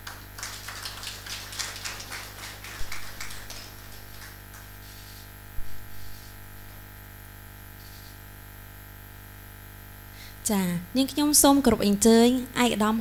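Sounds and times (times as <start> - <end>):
audience clapping: 0.0 - 5.1
mains hum: 0.0 - 13.0.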